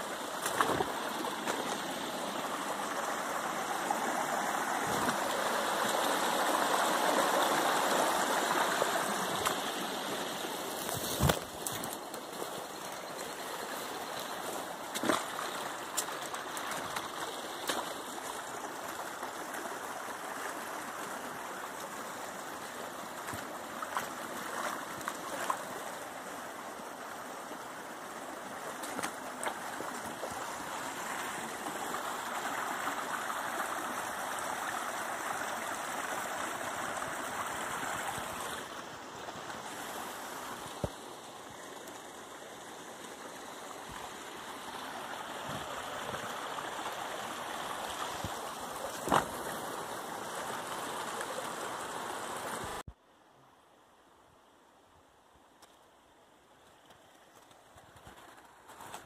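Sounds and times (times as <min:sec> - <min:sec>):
creek running over rocks: 0:00.0 - 0:59.0.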